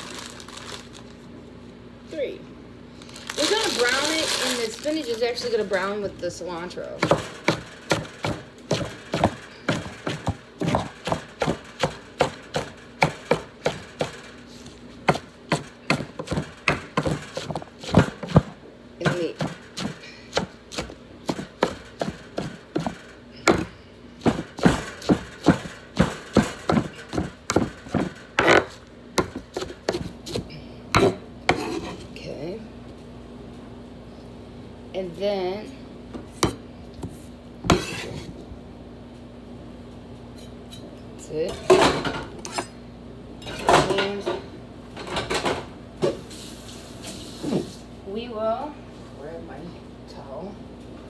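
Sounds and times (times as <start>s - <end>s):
knife chopping on wooden board: 7.0s - 14.1s, 15.1s - 32.0s.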